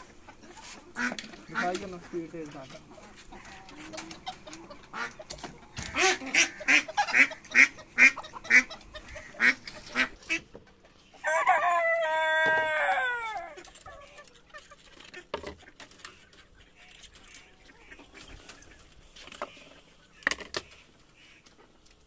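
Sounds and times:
chickens clucking: 0.0 - 22.0
rooster crowing: 11.2 - 13.6.

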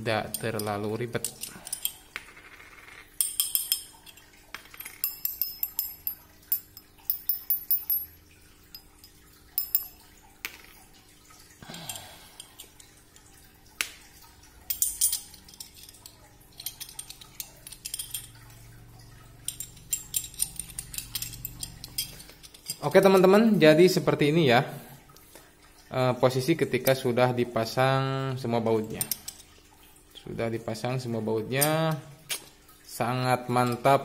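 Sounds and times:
metal parts clinking: 0.2 - 8.9, 9.5 - 10.8, 14.6 - 23.3, 28.8 - 29.5.

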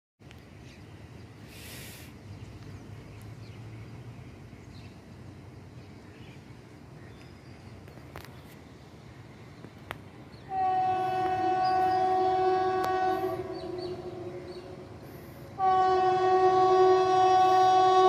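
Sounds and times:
brief hiss: 1.4 - 2.3.

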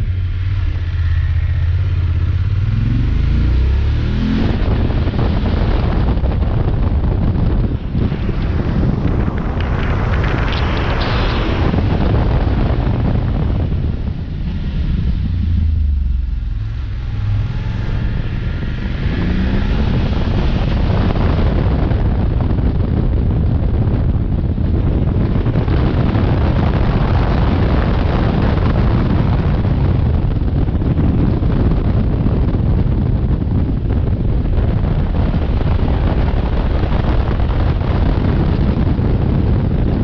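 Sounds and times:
motorcycle engine: 0.0 - 22.0
wind buffeting microphone: 0.0 - 40.0.

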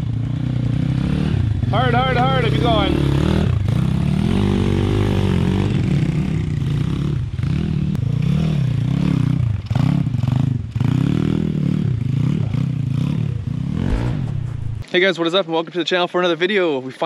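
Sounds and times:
dirt bike engine revving: 0.4 - 14.9.

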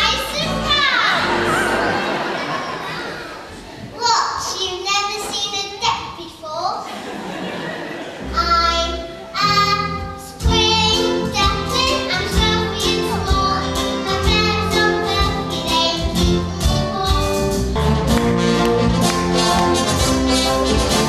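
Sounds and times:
stage show music with brass: 8.3 - 21.0.

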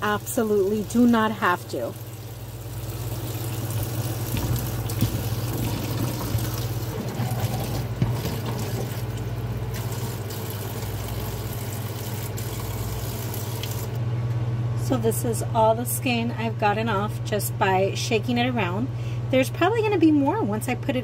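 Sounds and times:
tap water running into colander: 0.0 - 14.0
steady low hum: 0.0 - 21.0.

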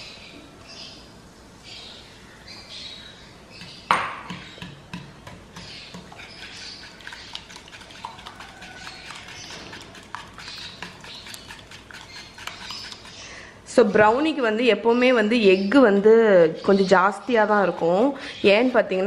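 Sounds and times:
whisk wires clicking against pan: 4.3 - 13.2
wet swishing batter: 4.9 - 13.3.

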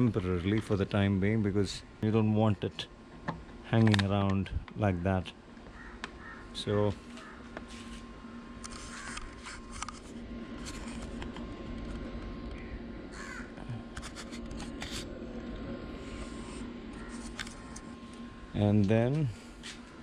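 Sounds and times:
hands handling headlamp clicks: 3.8 - 4.4
crow cawing: 5.7 - 6.6, 7.2 - 7.5, 12.6 - 13.6, 16.9 - 17.8.

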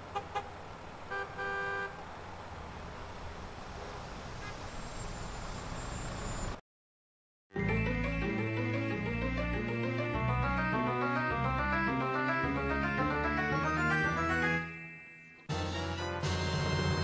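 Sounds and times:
road traffic noise: 0.0 - 6.6
car horn tooting: 1.1 - 2.0.

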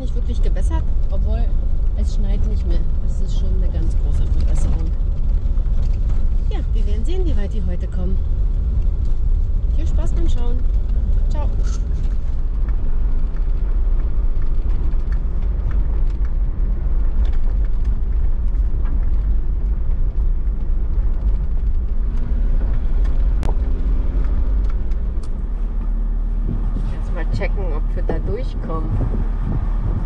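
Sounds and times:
engine and drivetrain rumble: 0.0 - 30.0.

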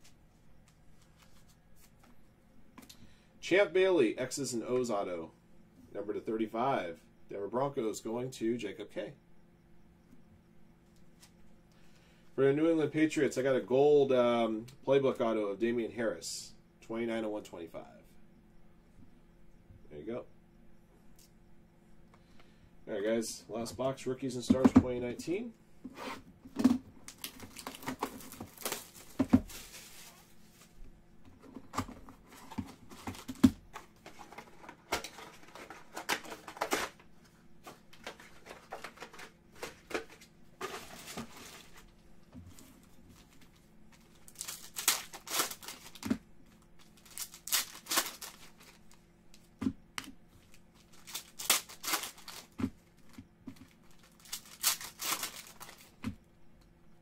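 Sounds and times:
foil packs tearing: 27.0 - 30.3, 44.1 - 46.2, 46.8 - 48.8, 50.8 - 52.6, 53.8 - 56.0
wrappers crinkling: 27.0 - 30.7, 43.2 - 49.0, 50.4 - 56.0.

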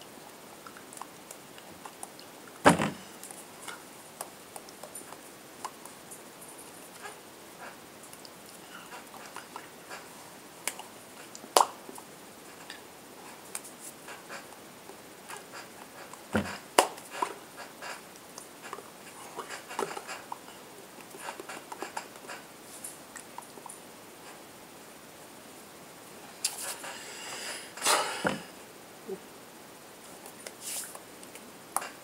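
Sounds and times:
sharp knocks: 2.7 - 3.1.

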